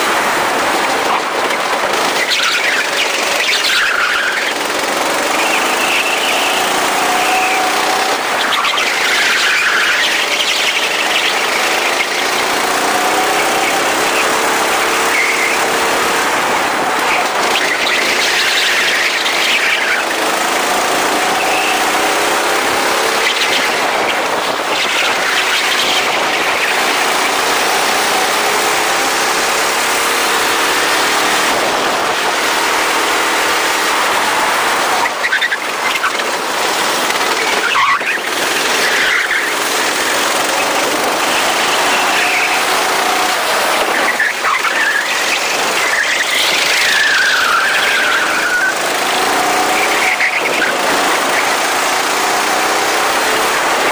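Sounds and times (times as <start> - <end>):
go-kart engines racing: 0.0 - 53.9
tyre squeal: 1.4 - 53.9.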